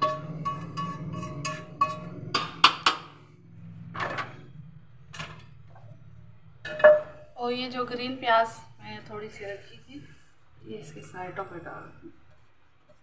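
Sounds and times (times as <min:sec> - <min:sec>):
utensil scraping in pot: 0:00.0 - 0:03.2.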